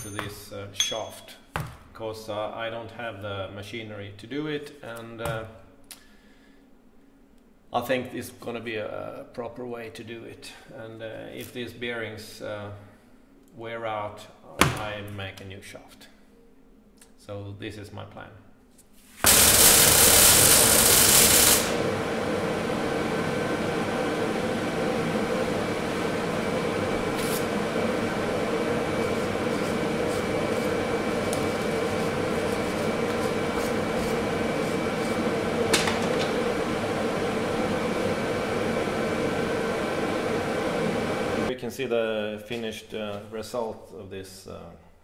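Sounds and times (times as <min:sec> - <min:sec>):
welding arc crackling: 0:19.2 - 0:21.9
angle grinder running: 0:19.3 - 0:22.0, 0:23.4 - 0:41.5.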